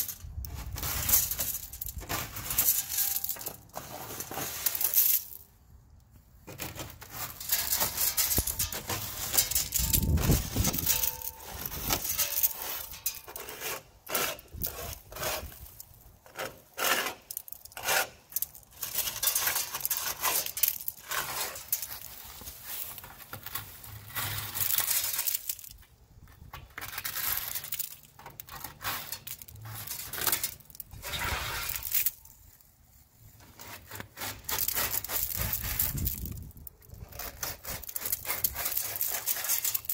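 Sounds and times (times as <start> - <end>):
shells crunching and clinking: 0.0 - 3.7, 7.4 - 13.4
hand scraper scraping mussels: 6.5 - 25.4, 26.4 - 32.0, 33.4 - 39.9.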